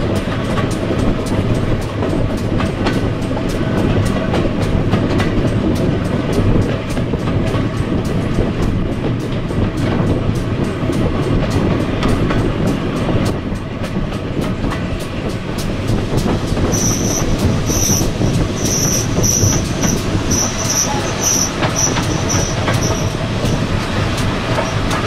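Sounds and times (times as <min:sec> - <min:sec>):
train wheels rumbling on rails: 0:00.0 - 0:25.0
wheel flanges squealing: 0:16.2 - 0:25.0.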